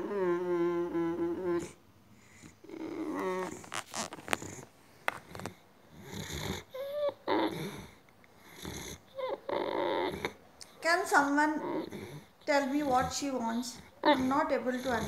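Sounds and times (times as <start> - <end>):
dog whining: 0.0 - 4.7, 5.3 - 15.0
dog breathing noisily: 10.0 - 15.0.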